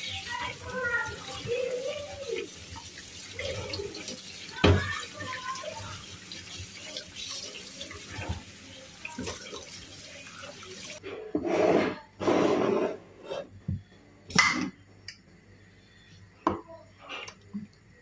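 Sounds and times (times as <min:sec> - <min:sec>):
tap water running into a sink: 0:00.0 - 0:11.0.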